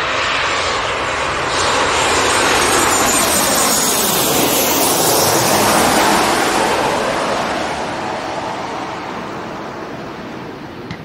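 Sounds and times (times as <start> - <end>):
jet airliner roaring overhead: 0.0 - 11.0.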